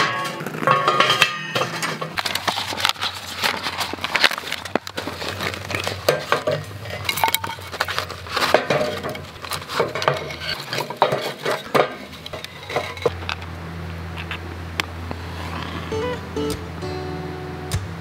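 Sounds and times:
firewood clacking and knocking: 0:00.0 - 0:13.5
wood clinking on metal frame: 0:00.0 - 0:13.5.

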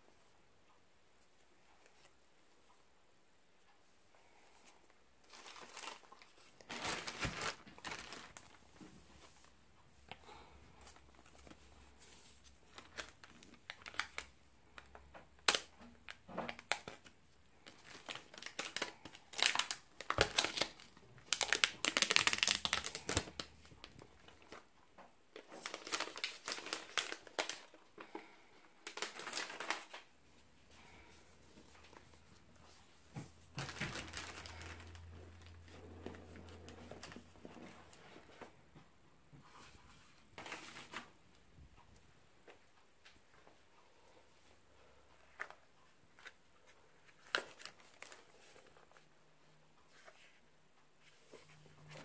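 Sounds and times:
plastic packaging crinkling and tearing: 0:05.3 - 0:08.8, 0:12.5 - 0:24.6, 0:25.4 - 0:28.2, 0:28.8 - 0:30.1, 0:33.4 - 0:38.0, 0:47.0 - 0:49.0.

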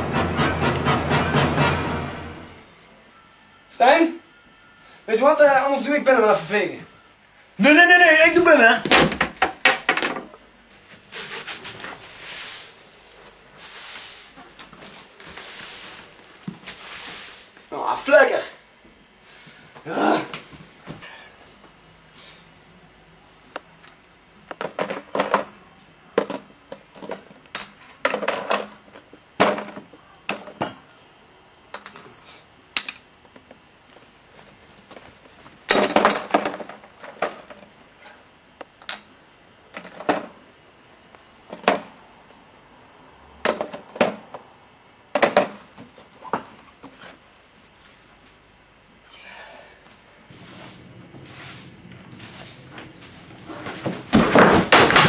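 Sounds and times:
bottles and cans clinking: 0:35.7 - 0:37.4.

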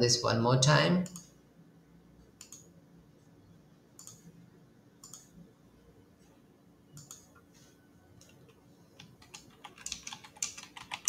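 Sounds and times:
computer mouse clicks: 0:01.0 - 0:01.4, 0:02.4 - 0:02.7, 0:04.0 - 0:04.3, 0:05.0 - 0:05.4, 0:06.9 - 0:07.4.

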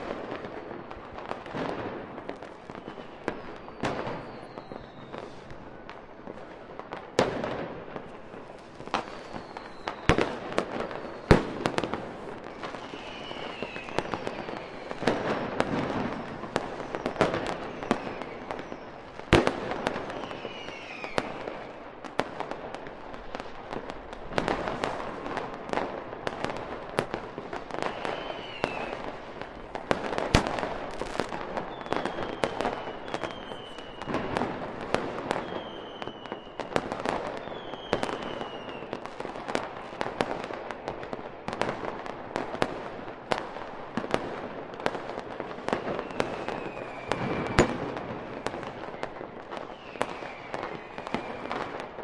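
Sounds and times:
firework bangs: 0:00.0 - 0:52.0
firework crackling: 0:00.0 - 0:52.0
falling firework whistles: 0:01.5 - 0:06.6, 0:07.2 - 0:22.6, 0:26.2 - 0:39.6, 0:45.6 - 0:52.0.

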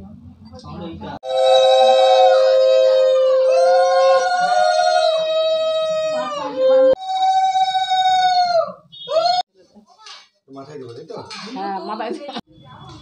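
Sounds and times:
conch shells blown in held notes: 0:01.2 - 0:04.2.

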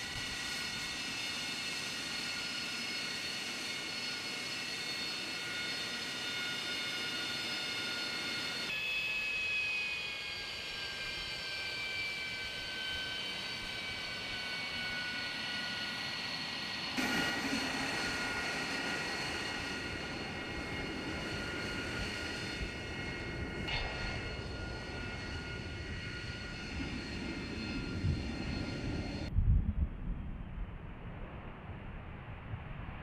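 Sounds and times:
jet engine whine: 0:00.0 - 0:33.0
jet rush: 0:13.3 - 0:29.3
deep jet rumble: 0:16.0 - 0:33.0.

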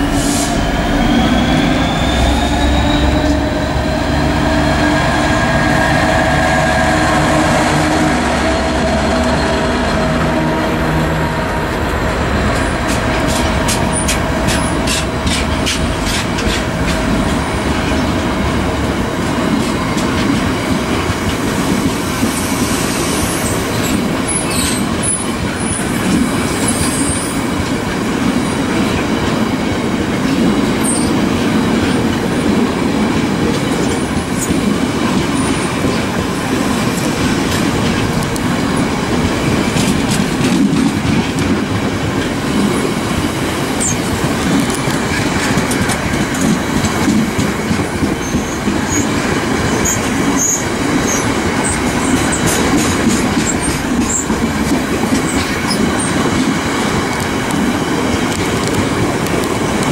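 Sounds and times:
high wheel squeals: 0:00.0 - 0:10.6
freight train rumbling past: 0:00.0 - 0:59.9.

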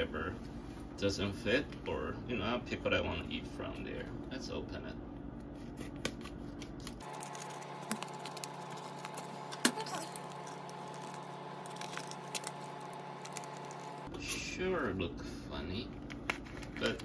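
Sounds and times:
plastic package opening: 0:07.0 - 0:14.1.

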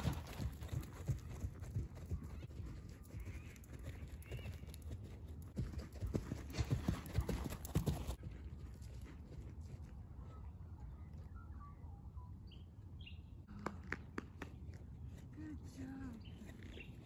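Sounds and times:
horse hooves clip-clopping: 0:00.0 - 0:10.0.

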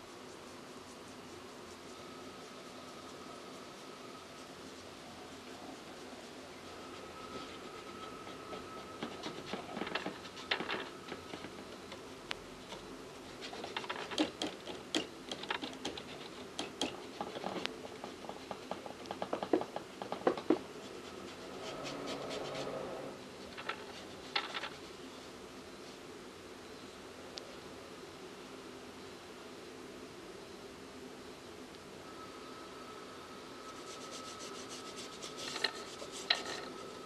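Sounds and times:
paintbrush taps and scratches: 0:34.1 - 0:36.8.

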